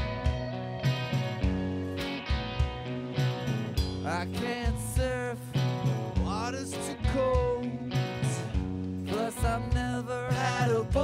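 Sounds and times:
rock band playing live: 0.0 - 11.0
man singing: 4.0 - 11.0.

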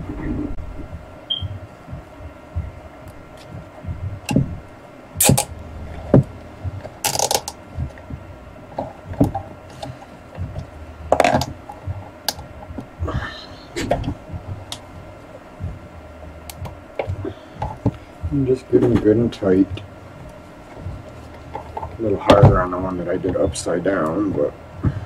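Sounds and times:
cable ties zipping: 5.2 - 5.5.

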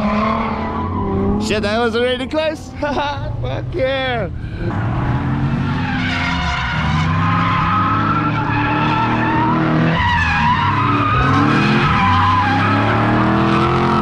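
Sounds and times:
car engines revving: 0.0 - 14.0
tyres squealing: 5.7 - 13.1.

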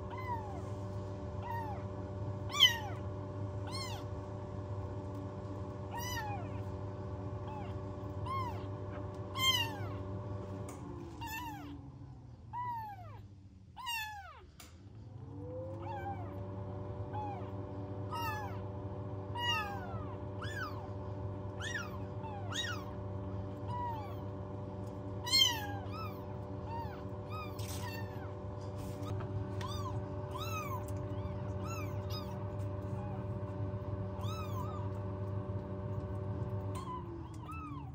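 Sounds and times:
kittens mewing: 0.0 - 0.8, 1.4 - 4.1, 5.9 - 6.8, 7.4 - 10.0, 11.0 - 11.9, 12.5 - 14.6, 15.6 - 18.7, 19.3 - 24.3, 25.2 - 35.1, 36.7 - 37.9
steady machine hum: 0.0 - 37.9.

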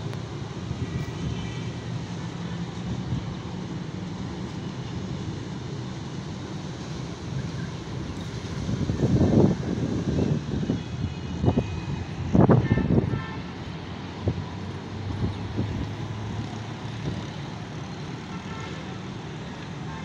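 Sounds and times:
road traffic rumble: 0.0 - 20.0
vehicle horn: 12.5 - 13.5.

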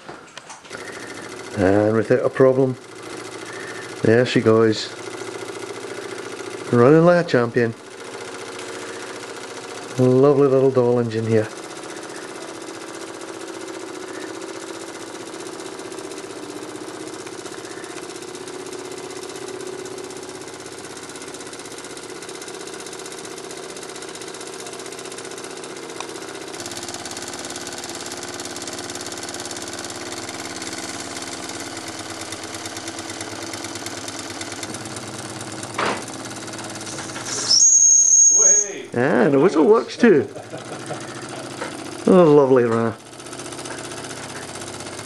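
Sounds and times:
toy steam engine running: 0.7 - 45.0.

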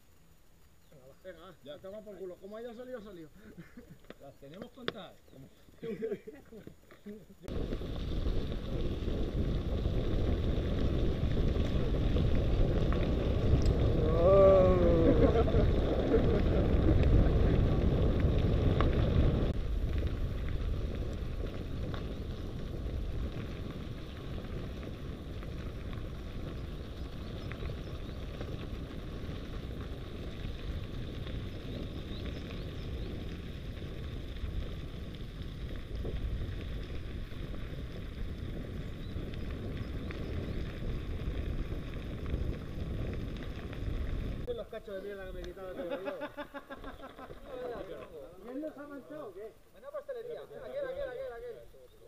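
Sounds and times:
tyres rumbling on gravel: 1.9 - 50.0
wind rushing over microphone: 7.4 - 45.6.

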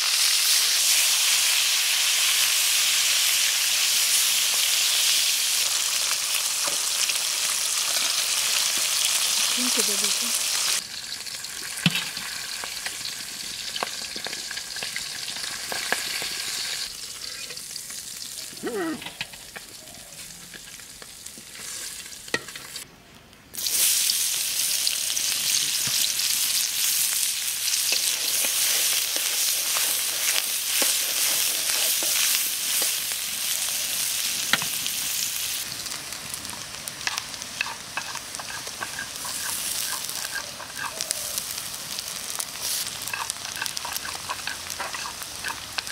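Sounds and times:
hot oil sizzling: 0.0 - 22.9, 23.5 - 45.9
spatula scraping: 37.0 - 41.4, 42.6 - 45.9.

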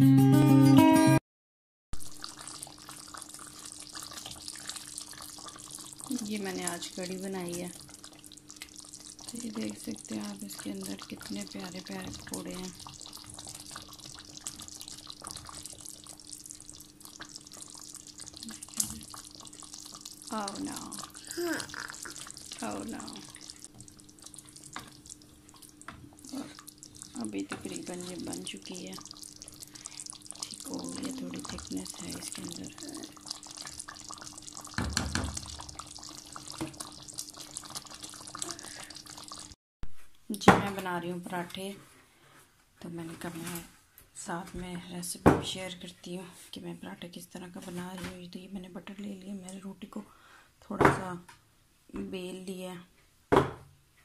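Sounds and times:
curry cooking with hiss and pops: 2.0 - 53.6
wooden spoon stirring: 8.1 - 34.8.

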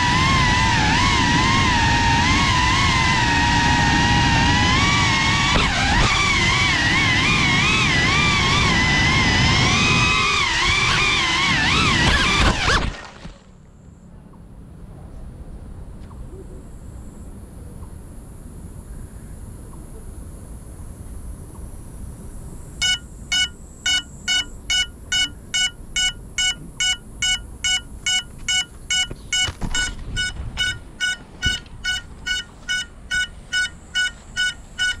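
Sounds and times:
low steady rumble: 13.1 - 35.0
short high-pitched beeps: 22.8 - 35.0.

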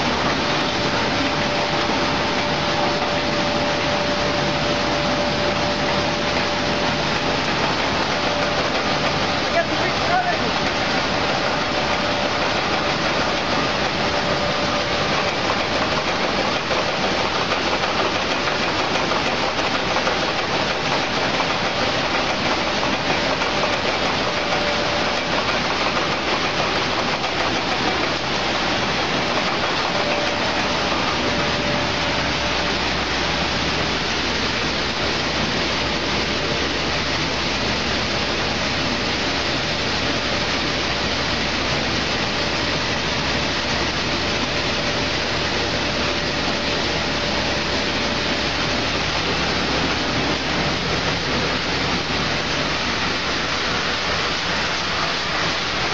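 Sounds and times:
faint machine hum: 0.0 - 55.9
raisins pouring rushing hiss: 0.0 - 55.9.

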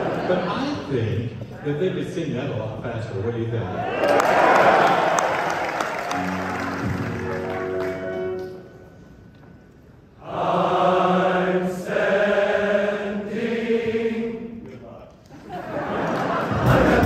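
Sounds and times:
men's chorus singing: 10.2 - 14.6, 16.4 - 17.0.

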